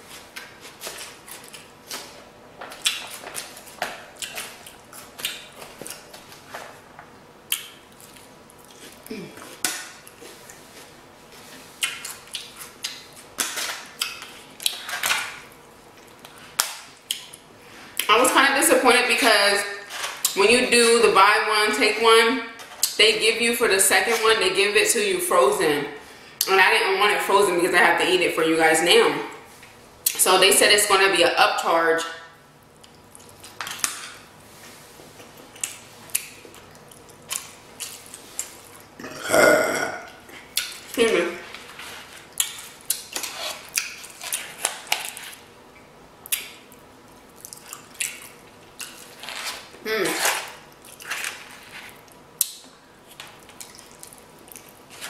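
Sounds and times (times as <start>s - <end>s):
chewing: 2.7s - 6.4s, 7.5s - 18.1s, 32.8s - 34.0s, 35.2s - 39.0s, 40.0s - 45.4s, 46.2s - 55.0s
loud burp: 39.0s - 40.2s.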